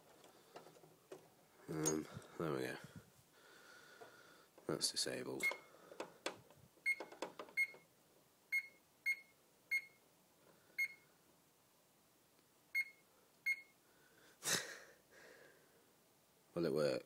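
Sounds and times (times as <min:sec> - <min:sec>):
alarm panel key-press beeps: 0:06.9 - 0:07.8, 0:08.5 - 0:10.0, 0:12.8 - 0:13.7.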